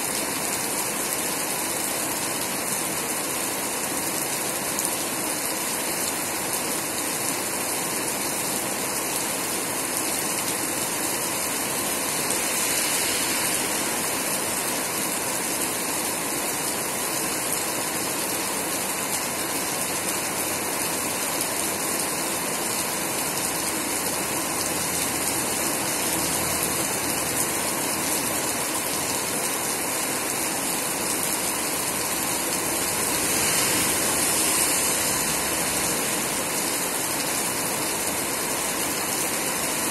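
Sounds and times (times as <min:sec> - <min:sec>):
heavy rain on street: 0:00.0 - 0:39.9
vehicle passing on wet road: 0:11.4 - 0:15.8, 0:23.5 - 0:29.2, 0:30.8 - 0:39.6.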